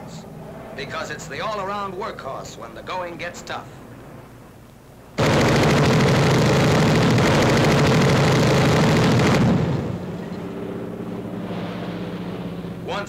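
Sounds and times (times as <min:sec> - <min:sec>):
aircraft engine drone: 0:00.0 - 0:13.0
machine-gun fire: 0:05.2 - 0:10.2.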